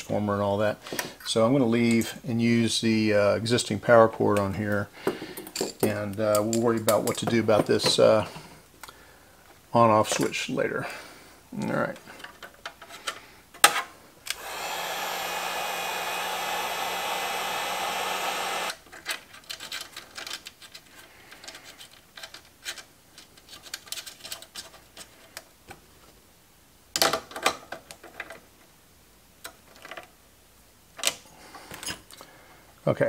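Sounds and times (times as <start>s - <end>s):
handling clicks and knocks: 4.4s - 8.3s
electric blower humming: 14.3s - 18.8s.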